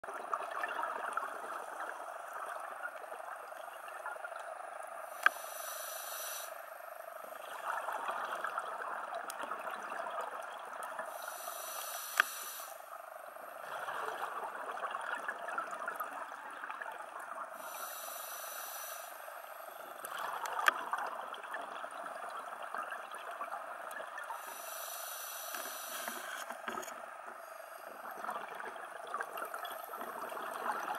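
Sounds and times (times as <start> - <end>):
exhaled bubbles underwater: 0.0 - 4.9, 7.2 - 11.4, 13.4 - 17.8, 19.8 - 24.6, 27.8 - 30.9
steady water hiss: 0.4 - 15.2, 15.9 - 30.9
diver breathing through regulator: 5.1 - 6.7, 11.1 - 12.9, 17.6 - 19.8, 24.4 - 26.5.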